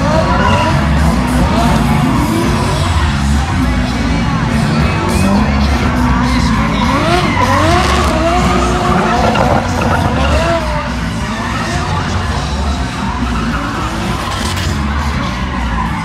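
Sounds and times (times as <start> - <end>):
car engine revving: 0.0 - 16.0
tyres screeching: 6.3 - 11.1.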